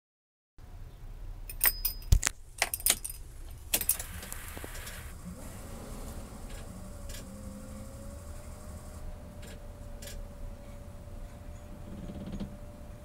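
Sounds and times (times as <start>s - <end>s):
steady low hum: 0.6s - 13.0s
keys jingling and clicking: 1.5s - 3.2s.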